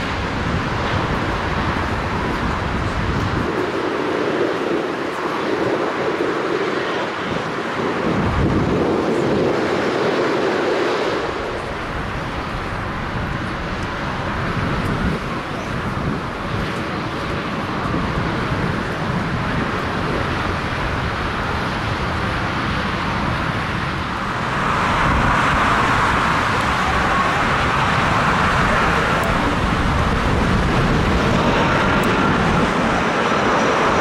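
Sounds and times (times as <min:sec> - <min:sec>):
jet airliner engines rushing: 0:00.0 - 0:34.0.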